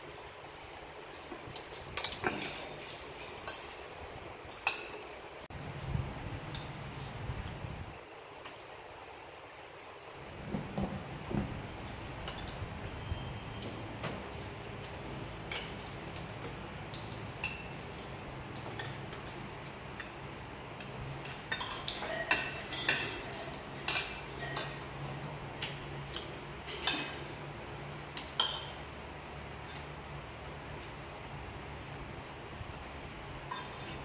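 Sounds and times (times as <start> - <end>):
spoons clinking on ceramic plates: 1.6 - 3.9, 4.5 - 5.1, 15.4 - 24.9, 26.1 - 27.3, 28.2 - 28.8, 33.5 - 34.0.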